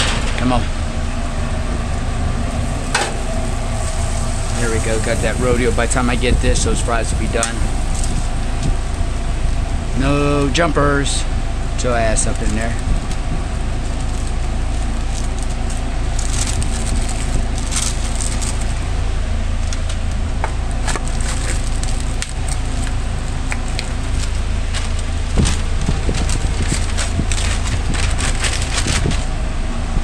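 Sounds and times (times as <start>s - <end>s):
low mechanical hum: 0.0s - 30.0s
paper bag rustling: 2.5s - 9.0s, 12.2s - 18.8s, 20.7s - 29.4s
paper crinkling: 12.3s - 18.8s, 20.8s - 29.3s.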